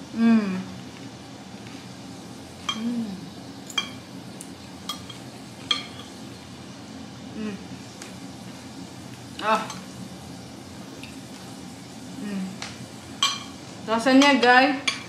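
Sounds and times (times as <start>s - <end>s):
person humming mm: 0.1s - 0.8s, 2.7s - 3.3s, 12.2s - 12.6s
cutlery clinking on ceramic bowl: 3.7s - 4.0s, 4.9s - 6.2s, 13.2s - 13.6s.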